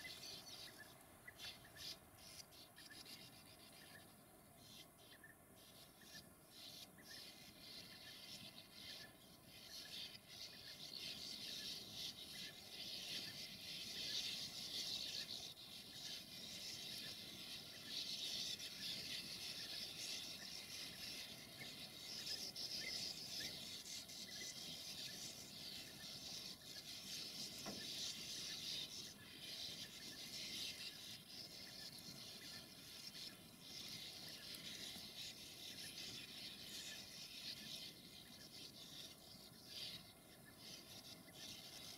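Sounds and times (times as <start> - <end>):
birds twittering and chattering: 0.0 - 41.9.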